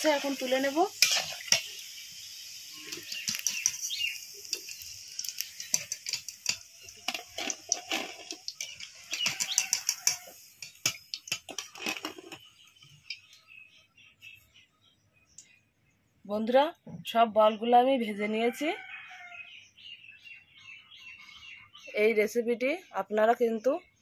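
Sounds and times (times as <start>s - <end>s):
metal skimmer scraping and clinking on pan: 0.0s - 1.8s, 2.8s - 12.5s
oil sizzling: 0.0s - 13.4s.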